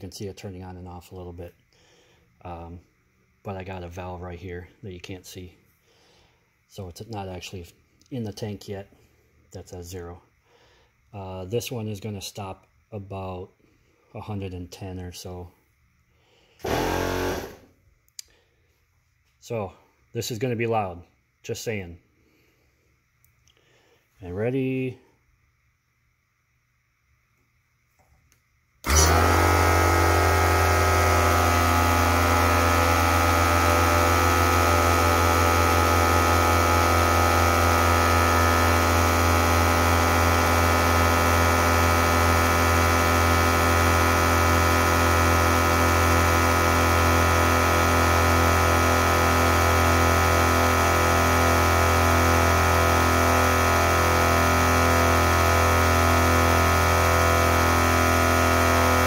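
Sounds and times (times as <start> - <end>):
air compressors running: 16.5 - 17.8, 28.8 - 59.0.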